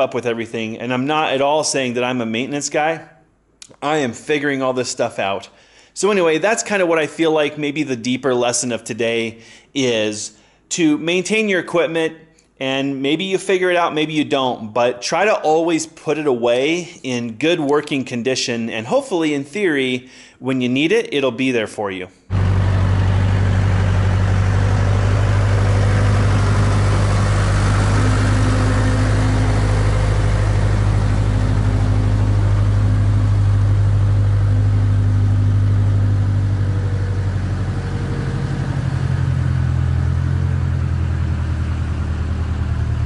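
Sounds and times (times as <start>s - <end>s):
backhoe engine running: 22.3s - 43.0s.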